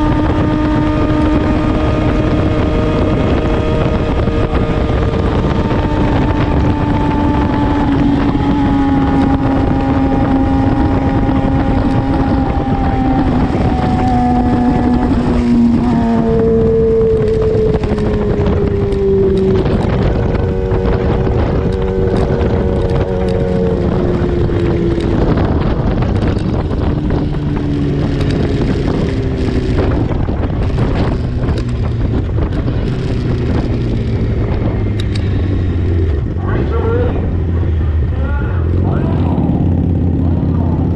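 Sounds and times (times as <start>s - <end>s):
motorcycle engine decelerating: 0.0s - 40.9s
wind noise on microphone: 0.0s - 40.9s.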